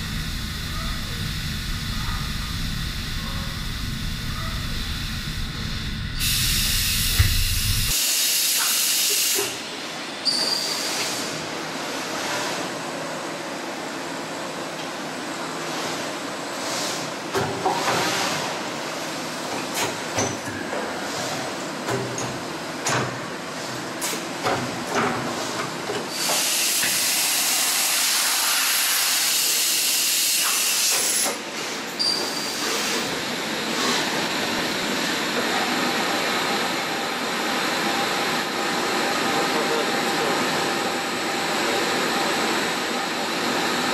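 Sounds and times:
machine low rumble: 0.0 - 7.9
brief high whine: 0.0 - 8.5
machine motion hiss: 0.0 - 11.5, 25.4 - 41.2.

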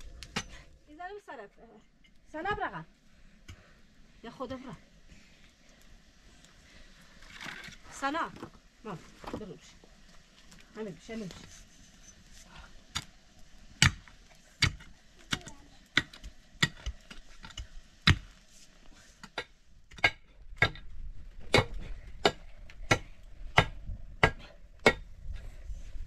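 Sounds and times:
pick striking stony soil: 13.8 - 18.4.

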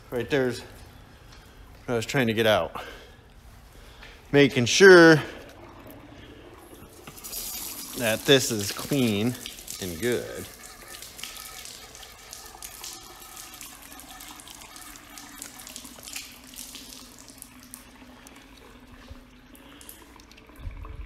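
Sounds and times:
hose water splashing on plastic: 4.2 - 21.0.

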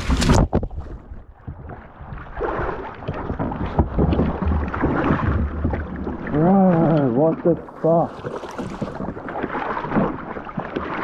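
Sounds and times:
wind rumbling on microphone: 0.0 - 6.9
kayak bumping and scraping: 0.0 - 11.0
water splashing: 0.0 - 11.0.

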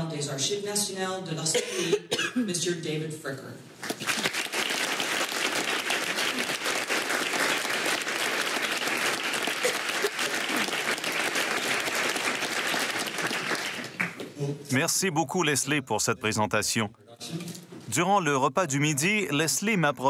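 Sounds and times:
audience applauding: 3.8 - 14.3.

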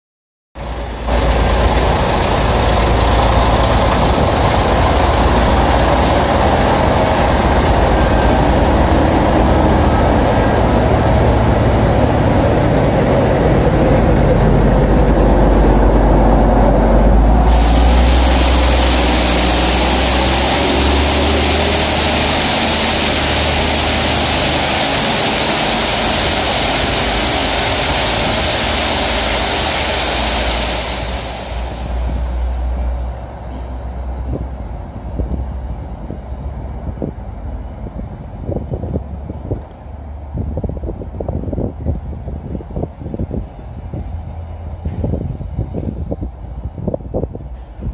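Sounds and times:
loud steady hiss: 0.6 - 35.8
diesel train rumbling past: 0.6 - 47.9.

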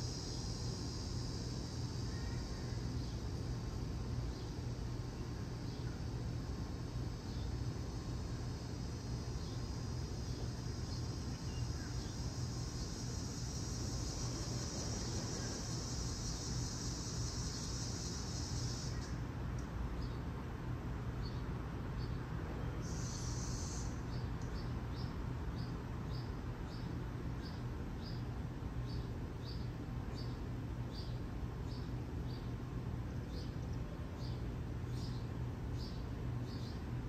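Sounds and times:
insect-like chirping: 0.0 - 19.2, 22.8 - 26.8
high hiss: 0.0 - 19.4, 22.8 - 25.0
steady low hum: 0.0 - 37.0.

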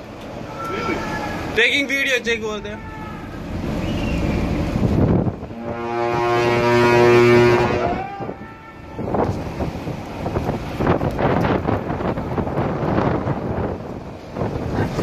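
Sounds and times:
ship's horn blast: 2.2 - 9.6
wind noise on microphone: 3.6 - 15.0.

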